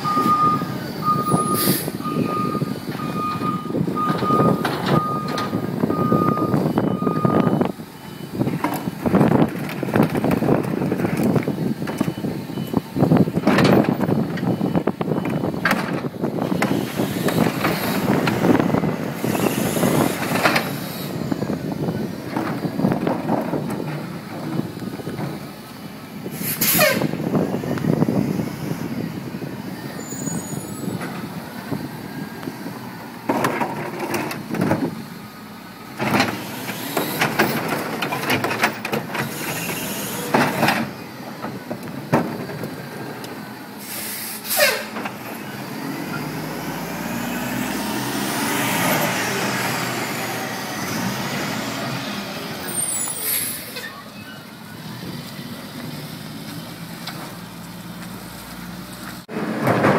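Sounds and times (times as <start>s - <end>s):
garbage truck engine: 0.0s - 59.9s
air brake hiss: 1.5s - 2.0s, 26.3s - 27.1s, 43.8s - 44.9s, 52.8s - 53.8s
loud bangs of cart emptying: 59.4s - 59.9s.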